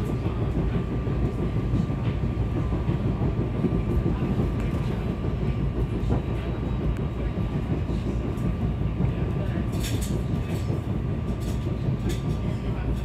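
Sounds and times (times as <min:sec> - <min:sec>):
train wheels rumbling on track: 0:00.0 - 0:13.0
light clicks from rails: 0:07.8 - 0:13.0.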